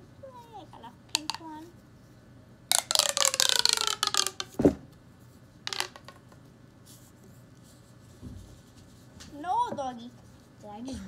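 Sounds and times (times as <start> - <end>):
plastic pop tube clicking: 1.1 - 1.4, 2.7 - 4.6, 5.7 - 6.2.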